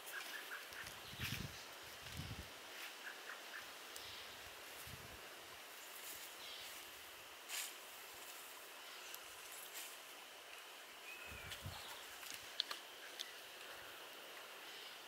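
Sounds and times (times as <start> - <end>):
faint rustles and snaps: 11.5 - 13.7.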